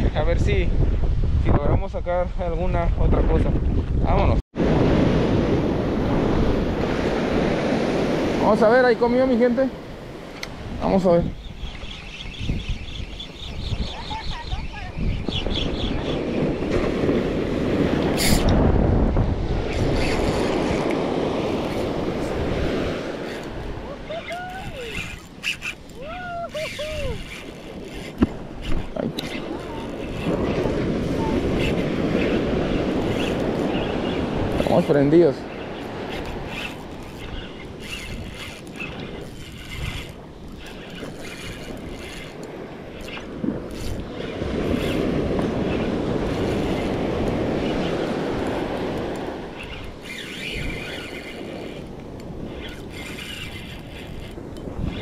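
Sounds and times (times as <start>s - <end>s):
wind buffeting microphone: 0.0s - 55.0s
fishing reel gears whirring: 11.1s - 16.2s, 17.6s - 55.0s.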